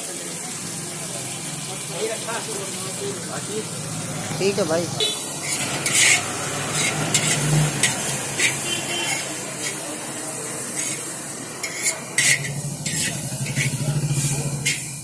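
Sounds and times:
noodles sizzling in a wok: 0.0 - 15.0
metal spatula scraping a wok: 5.0 - 15.0.

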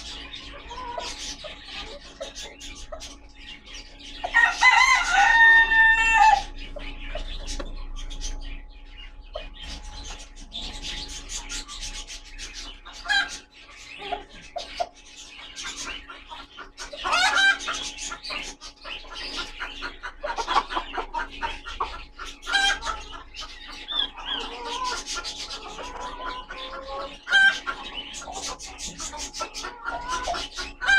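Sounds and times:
chickens clucking and calling: 0.0 - 30.9
chickens scratching in wood shavings: 21.8 - 30.9.

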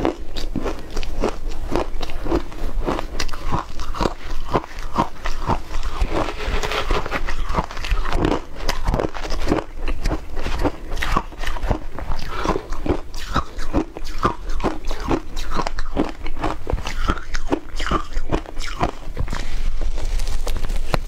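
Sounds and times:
shaved ice being chewed: 0.0 - 21.0
metal spoon scraping ice: 4.5 - 9.6.

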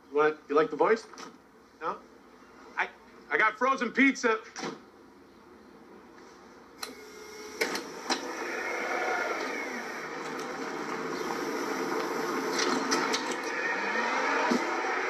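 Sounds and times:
electric wheelchair motors whirring: 6.8 - 15.0.

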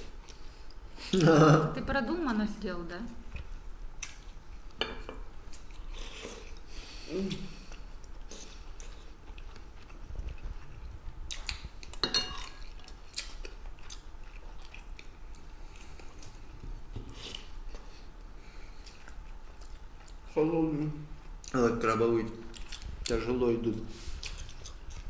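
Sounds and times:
chewing and eating: 5.4 - 25.0.

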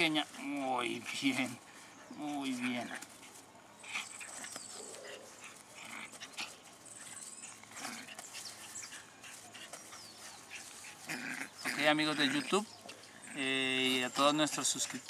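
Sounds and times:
dog tugging sounds: 0.0 - 13.1.

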